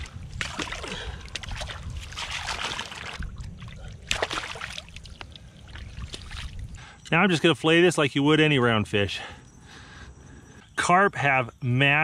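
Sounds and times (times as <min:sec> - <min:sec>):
water splashing and sloshing: 0:00.0 - 0:06.8.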